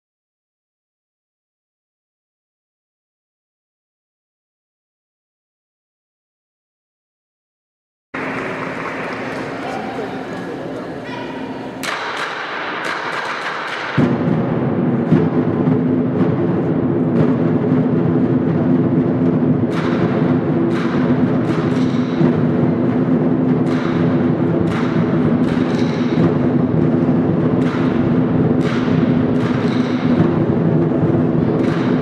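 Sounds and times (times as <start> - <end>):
large drum roll: 14.0 - 32.0.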